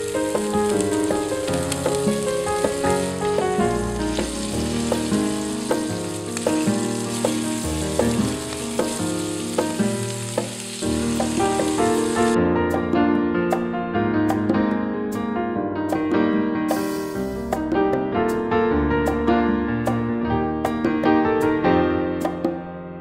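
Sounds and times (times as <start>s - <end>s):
scallops sizzling in butter: 0.0s - 12.4s
background piano music: 0.0s - 23.0s.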